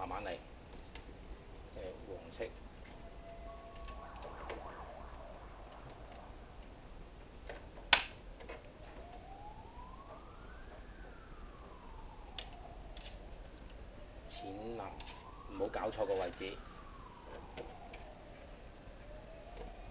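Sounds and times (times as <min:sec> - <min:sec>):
siren rising and falling: 0:01.8 - 0:07.3, 0:08.5 - 0:19.9.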